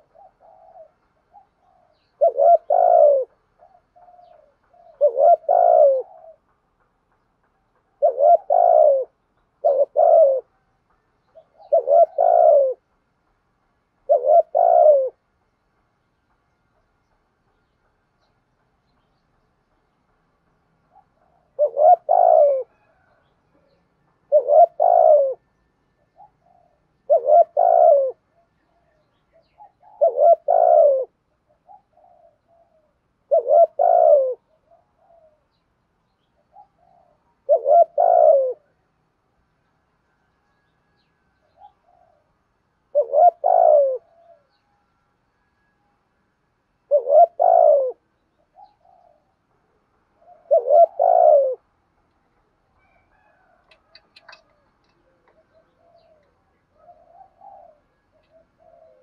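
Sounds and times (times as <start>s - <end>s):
dove cooing: 0.0s - 6.8s, 7.9s - 10.6s, 11.2s - 12.9s, 14.0s - 15.3s, 20.8s - 35.6s, 36.3s - 38.9s, 40.8s - 44.6s, 46.8s - 51.8s, 52.8s - 59.0s.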